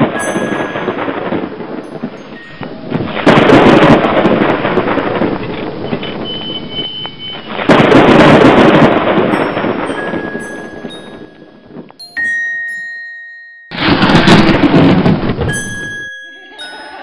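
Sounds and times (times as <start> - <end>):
thunderclaps rumbling: 0.0 - 12.0, 13.7 - 17.0
faint high tone: 15.5 - 17.0.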